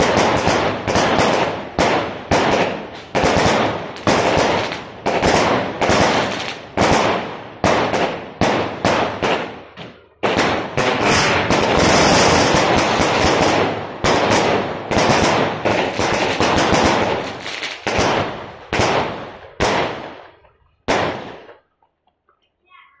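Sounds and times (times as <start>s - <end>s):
firework bangs: 0.0s - 21.8s.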